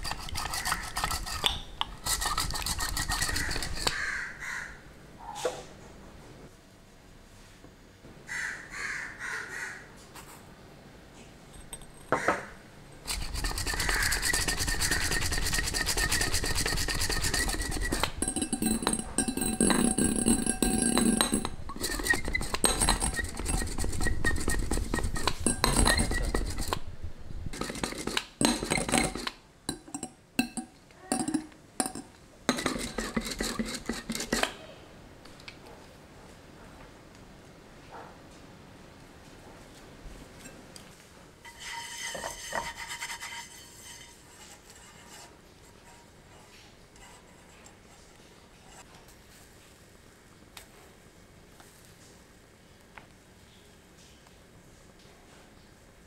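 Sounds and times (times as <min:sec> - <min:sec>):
metal whisk clattering in glass bowl: 0:00.0 - 0:03.9, 0:13.1 - 0:26.8, 0:27.5 - 0:34.5.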